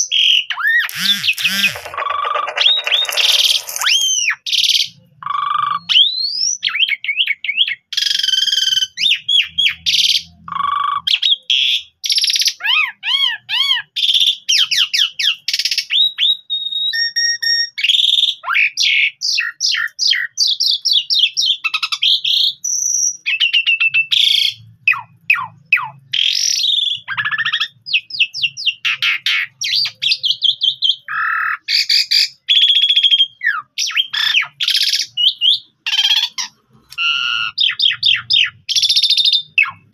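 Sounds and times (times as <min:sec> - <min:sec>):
starling singing: 0:00.0 - 0:07.8, 0:23.2 - 0:39.9.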